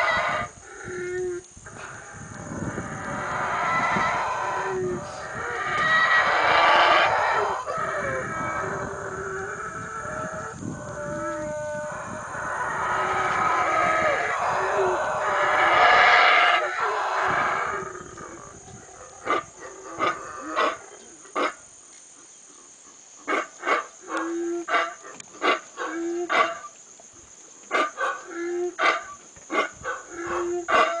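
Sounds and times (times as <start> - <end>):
monkey deep roar: 0.0 - 21.0.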